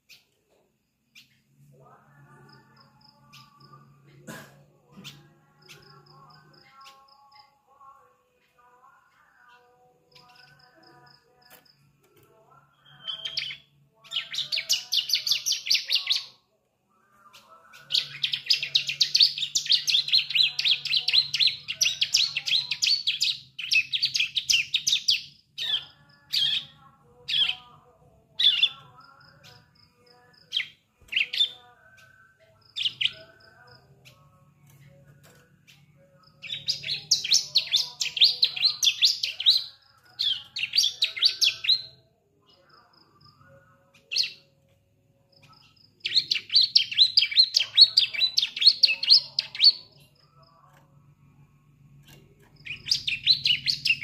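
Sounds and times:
bird chattering song: 12.8 - 16.4, 17.2 - 27.8, 28.4 - 41.9, 45.6 - 50.6, 52.1 - 54.0.

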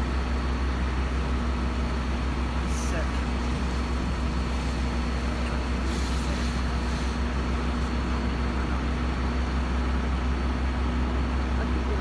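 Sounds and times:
fire engine pump droning: 0.0 - 12.0
hiss: 3.4 - 8.2.

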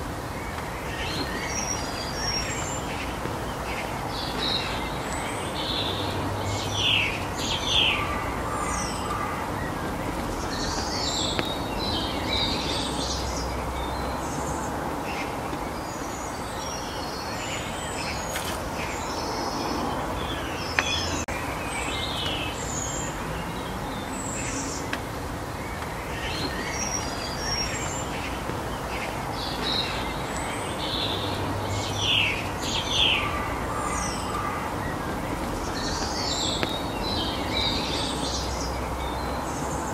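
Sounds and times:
outdoor background hiss: 0.0 - 39.9
small songbirds chirping: 0.0 - 39.9.

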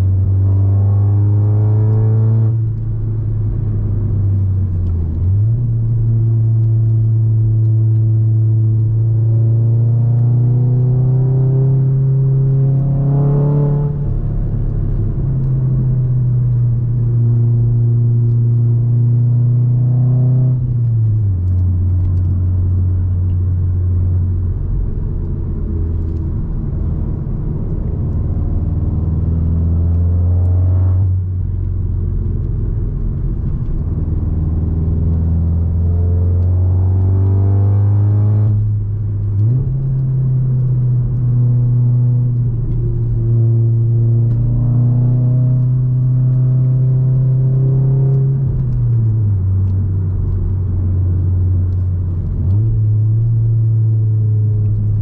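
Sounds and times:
car engine revving while driving: 0.0 - 55.0.

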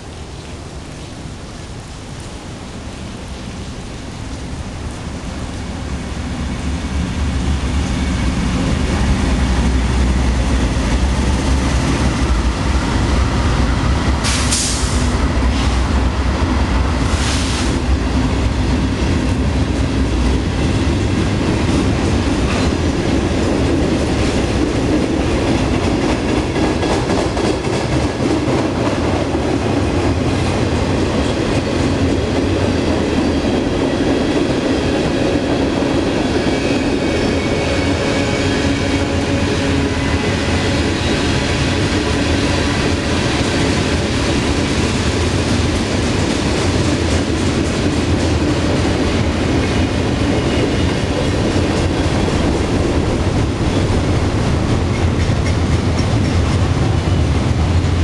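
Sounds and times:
diesel locomotive engines rumbling: 0.0 - 58.0
short hisses: 14.3 - 15.1
train wheels clattering over rail joints: 21.4 - 58.0.

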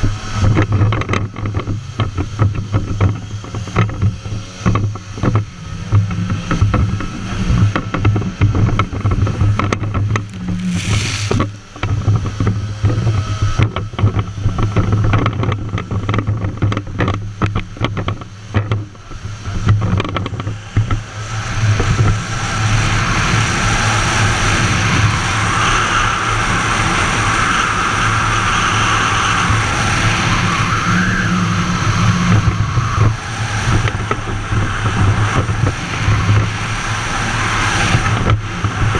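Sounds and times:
jet ski engine: 0.0 - 38.9
wind: 0.0 - 38.9
water slapping against hull: 8.8 - 13.0.

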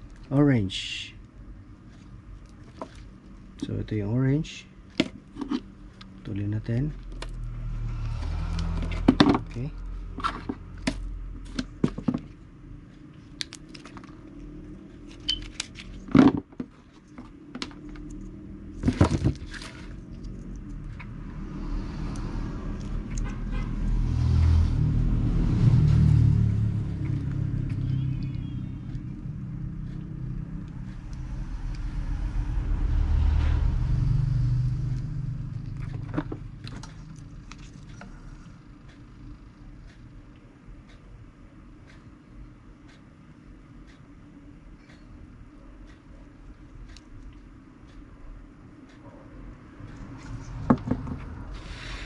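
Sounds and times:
road vehicle passing rumble: 6.0 - 11.4, 19.8 - 39.3, 49.6 - 52.0.

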